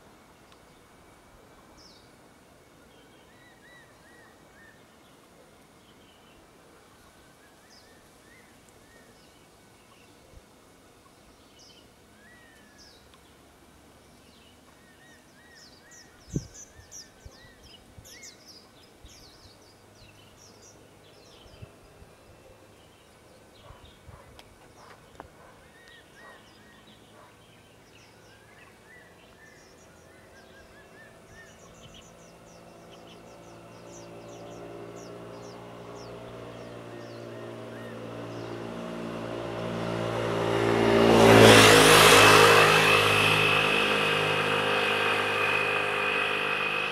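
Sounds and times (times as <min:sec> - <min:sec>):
birds chirping and calling: 0:22.4 - 0:38.6
vehicle engine approaching: 0:30.4 - 0:46.9.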